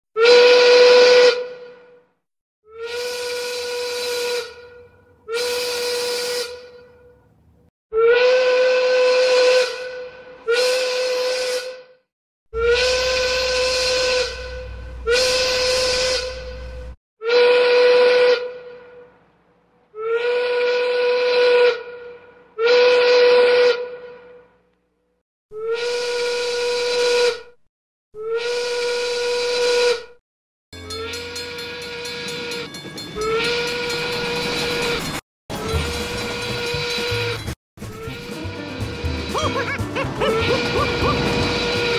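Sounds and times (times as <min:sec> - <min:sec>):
steam locomotive whistle blasts: 0:00.2 - 0:02.0, 0:02.8 - 0:07.1, 0:08.0 - 0:12.0, 0:12.6 - 0:19.0, 0:22.6 - 0:24.4, 0:25.6 - 0:27.6, 0:28.2 - 0:30.2, 0:35.6 - 0:39.6, 0:40.4 - 0:41.9.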